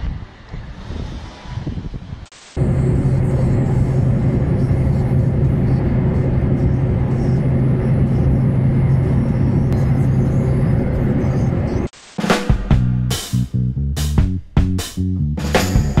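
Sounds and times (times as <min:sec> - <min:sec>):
tyre and road noise: 0:00.0 - 0:09.8
car cabin drone: 0:00.0 - 0:11.9
music with plucked bass line: 0:12.5 - 0:16.0.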